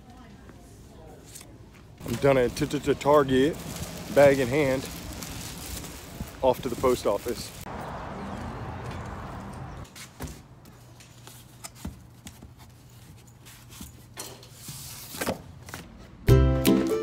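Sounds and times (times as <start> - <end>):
background music: 16.3 - 17.0.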